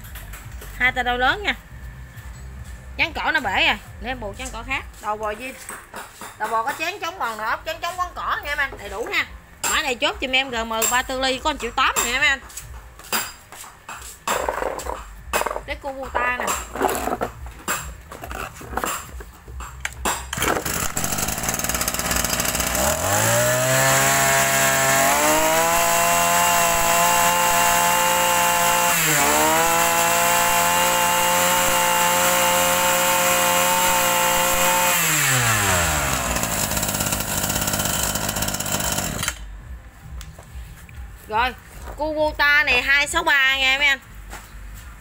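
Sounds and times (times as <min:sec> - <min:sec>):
brush cutter engine running: 0:20.3 - 0:39.5.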